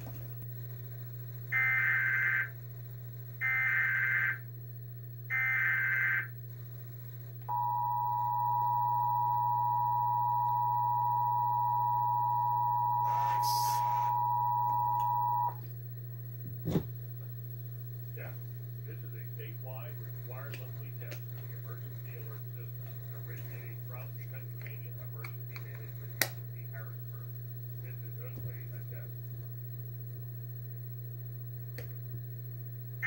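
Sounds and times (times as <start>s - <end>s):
two-tone attention signal: 7.5s - 15.6s
warbling data bursts: 9.8s - 15.6s.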